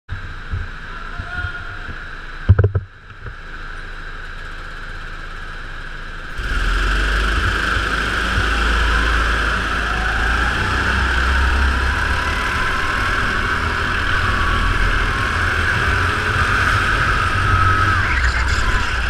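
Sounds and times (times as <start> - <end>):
heavy knocks: 2.5 - 2.9
go-kart motor running: 2.5 - 19.0.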